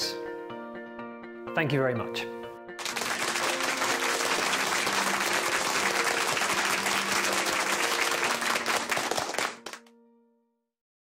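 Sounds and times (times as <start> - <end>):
audience applauding: 2.8 - 9.8.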